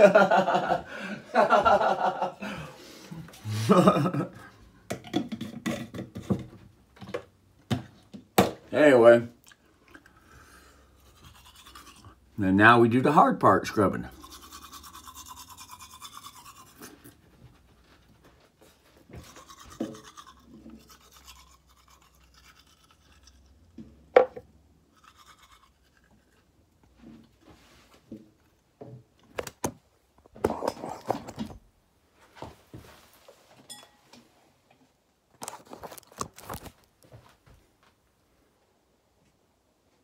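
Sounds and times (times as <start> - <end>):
toothbrush scrubbing: 10.8 - 12.4, 14.0 - 17.6, 19.1 - 23.8, 24.8 - 26.6.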